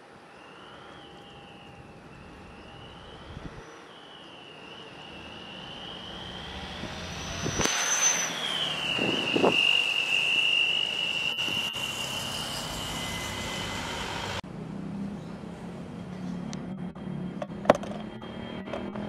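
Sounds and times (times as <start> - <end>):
jet engines roaring and whining: 0.0 - 19.0.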